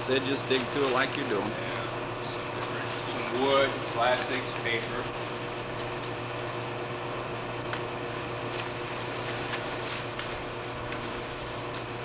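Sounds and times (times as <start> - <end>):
background hum and hiss: 0.0 - 12.0
rustling of shredded paper and plastic: 0.5 - 1.5, 2.6 - 6.6, 8.4 - 12.0.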